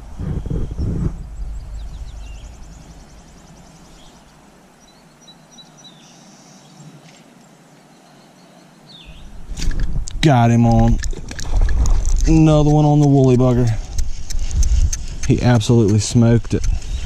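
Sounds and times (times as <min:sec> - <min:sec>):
wind buffeting microphone: 0:00.0 - 0:05.1, 0:09.0 - 0:17.0.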